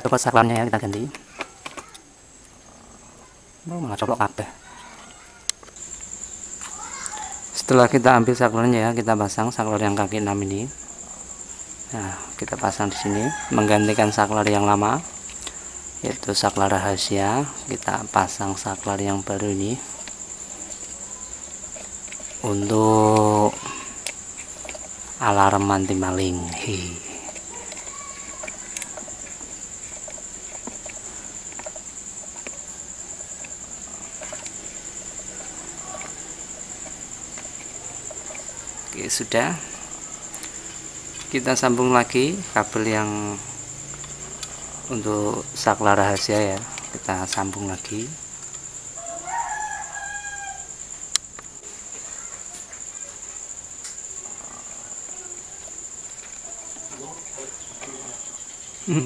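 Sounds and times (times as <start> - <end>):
insects chirping: 0.0 - 59.0
rooster crowing: 4.5 - 5.5, 12.5 - 15.1, 25.1 - 32.3, 48.8 - 51.0.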